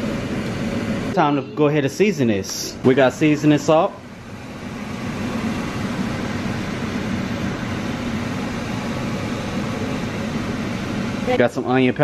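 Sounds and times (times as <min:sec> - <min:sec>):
steady whooshing hum: 0:00.0 - 0:12.0.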